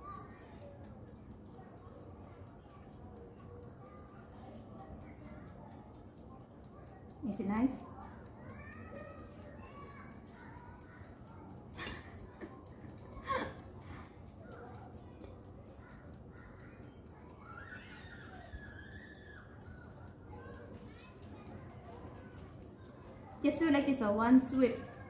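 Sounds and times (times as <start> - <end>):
faint steady ticking: 0.0 - 25.0
faint child murmuring: 7.9 - 18.6.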